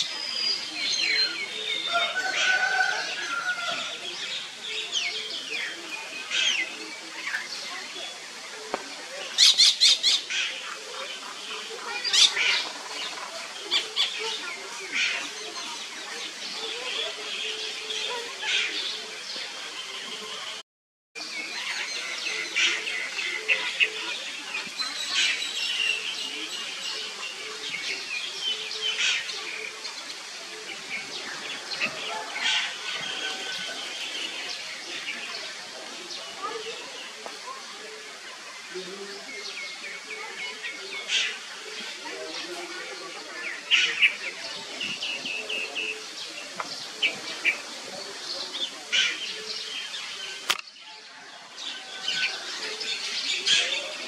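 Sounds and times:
sharp click: 50.4 - 50.7.

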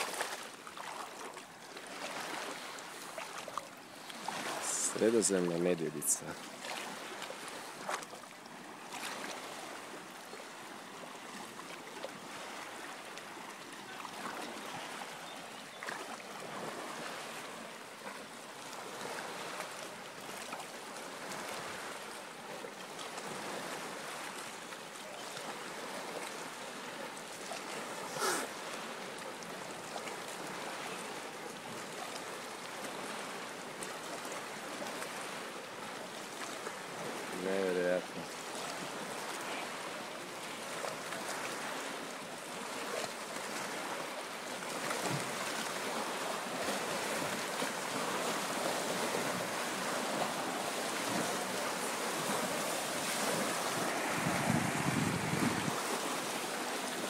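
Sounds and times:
seawater lapping on pebbles: 0.0 - 5.2.

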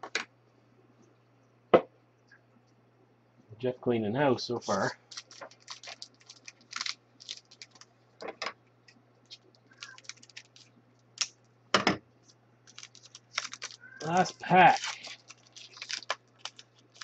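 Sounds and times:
cards rustling and clicking: 4.6 - 7.9, 9.3 - 11.3, 12.2 - 17.0.

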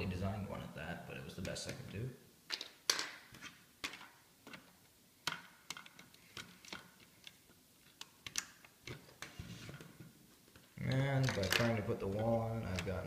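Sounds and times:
plastic pieces clicking: 2.5 - 9.3, 10.9 - 13.0.

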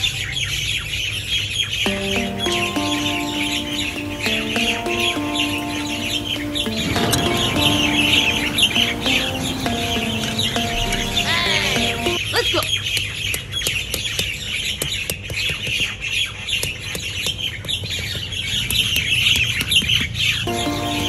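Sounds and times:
birds chirping: 0.2 - 21.0
music: 1.9 - 12.2, 20.5 - 21.0.

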